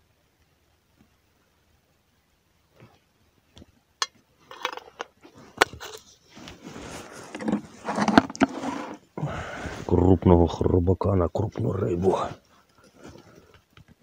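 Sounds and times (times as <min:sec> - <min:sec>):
rustling of dry reeds and twigs: 0:05.2 - 0:10.1.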